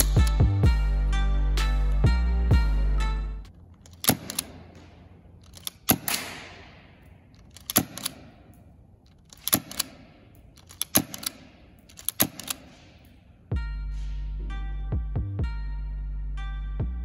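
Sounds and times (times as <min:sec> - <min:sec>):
airsoft pistol shots: 0:04.0 - 0:08.5, 0:09.4 - 0:13.2.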